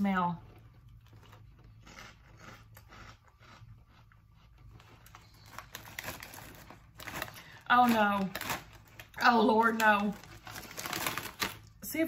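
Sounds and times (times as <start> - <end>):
plastic snack bag crinkling: 0.5 - 12.0
person chewing crunchy chip: 0.6 - 7.5.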